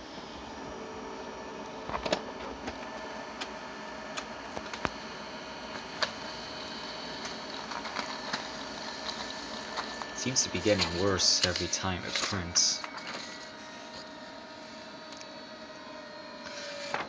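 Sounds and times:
laser printer whirring: 0.0s - 17.0s
printer clicks and ticks: 9.8s - 13.3s.

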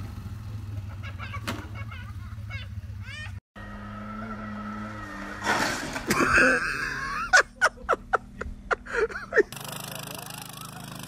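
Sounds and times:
motorcycle engine running: 0.0s - 5.4s, 9.5s - 11.0s
motorcycle crash: 4.6s - 7.1s
person wheezing laughter: 6.1s - 7.9s, 8.8s - 9.5s.

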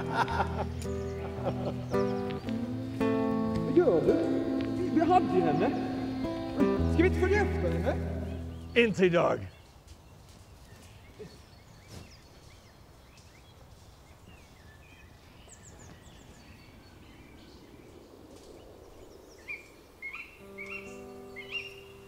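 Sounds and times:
held music notes: 0.0s - 9.5s, 20.4s - 22.0s
faint woodland ambience: 0.0s - 22.0s
small birds chirping: 0.0s - 22.0s.

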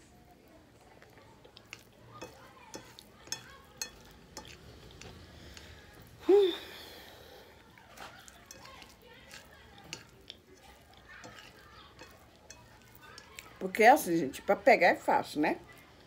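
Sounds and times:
person chewing with wet smacks: 0.3s - 6.3s, 7.5s - 13.7s.

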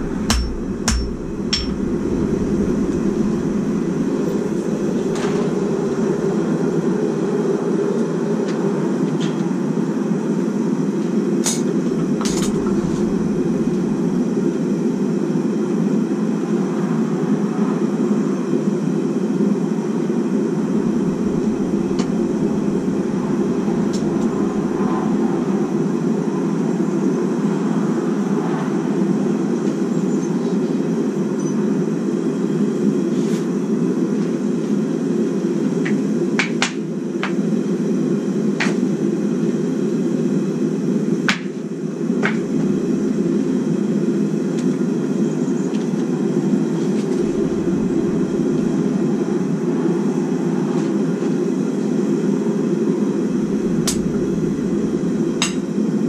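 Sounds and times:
forge roaring: 0.0s - 8.4s, 11.6s - 15.7s, 20.3s - 26.6s, 42.0s - 44.6s, 46.5s - 50.7s, 52.7s - 56.0s.

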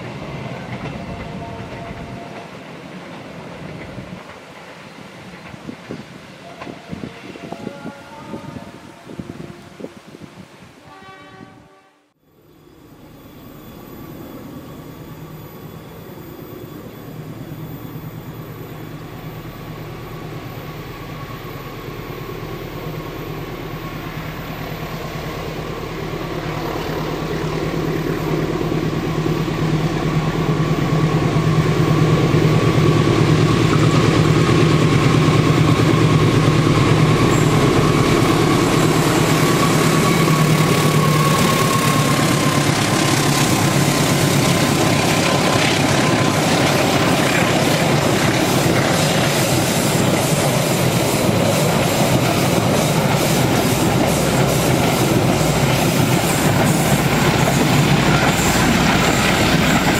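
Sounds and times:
locomotive engine drone: 12.3s - 59.9s.

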